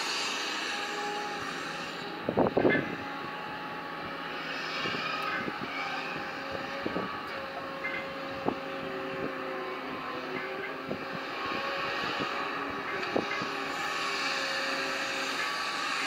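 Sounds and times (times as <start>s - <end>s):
engine whine: 0.0s - 16.0s
excavator diesel engine under load: 0.0s - 16.0s.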